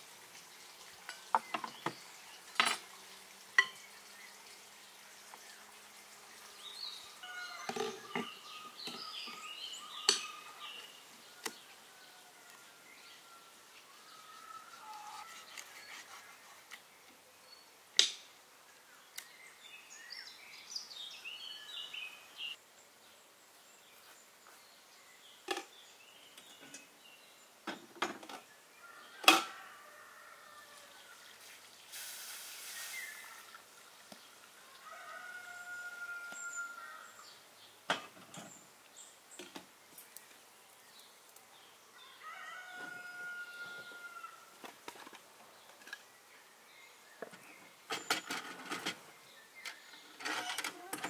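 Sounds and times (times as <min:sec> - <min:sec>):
birds chirping: 0:06.4 - 0:17.7.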